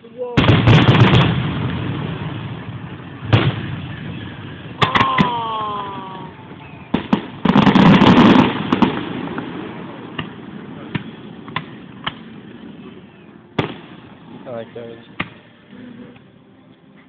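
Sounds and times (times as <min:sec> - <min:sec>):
crackling firework volley: 0:00.0 - 0:16.3
fireworks bangs: 0:00.3 - 0:15.5
firework falling tone: 0:00.4 - 0:13.0.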